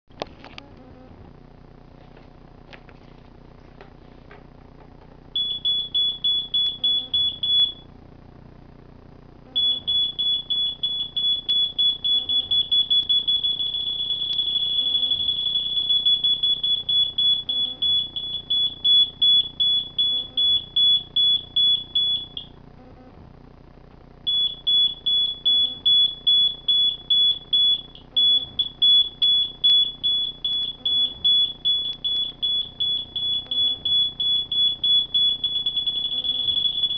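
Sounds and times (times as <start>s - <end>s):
electronic proximity beeping: 5.4s - 7.9s, 9.5s - 22.6s, 24.3s - 36.9s.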